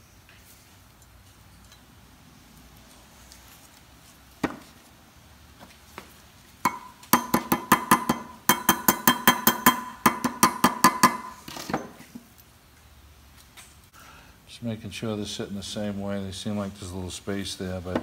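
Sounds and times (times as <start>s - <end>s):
metallic strikes on steel: 6.6s - 11.4s.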